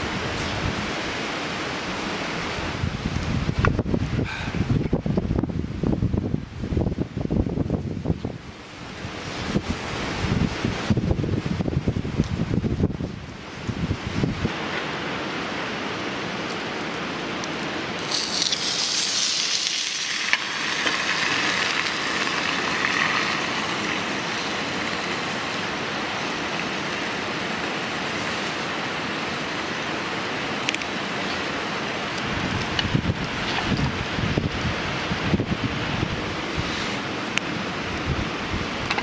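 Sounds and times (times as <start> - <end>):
wood fire hissing: 0.0 - 39.0
fire pops: 14.4 - 35.5, 36.4 - 39.0
hissing sizzle: 14.4 - 39.0.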